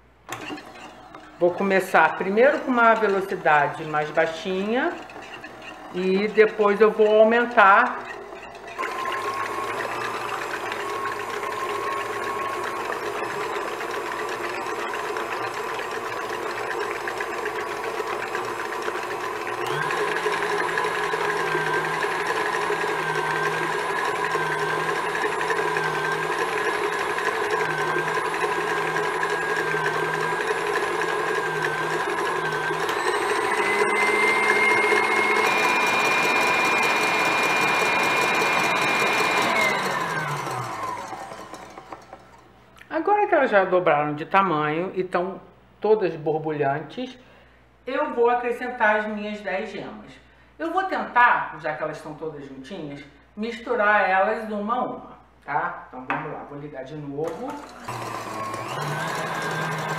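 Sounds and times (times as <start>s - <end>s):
stand mixer motor whining: 0.0s - 42.6s, 57.2s - 59.9s.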